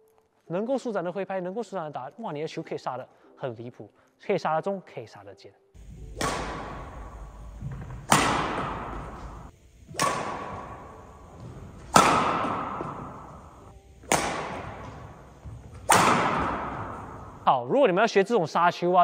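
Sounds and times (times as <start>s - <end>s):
racket striking shuttlecock: 5.8s - 17.4s.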